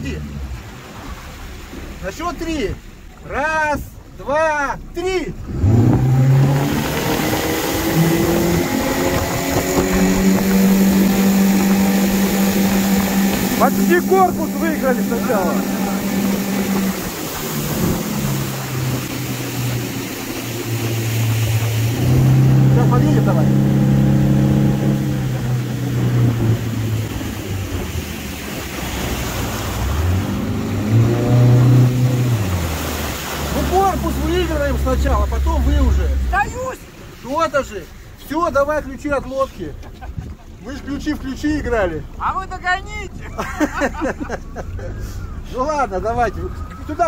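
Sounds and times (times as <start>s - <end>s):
rush of wind and water: 0.0s - 47.0s
outboard motor running flat out: 5.3s - 36.8s.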